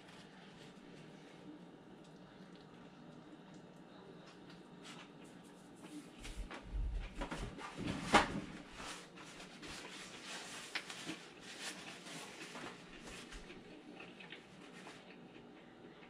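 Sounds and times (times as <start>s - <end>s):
paper towel rustling: 4.8s - 13.5s
man chewing: 10.7s - 16.0s.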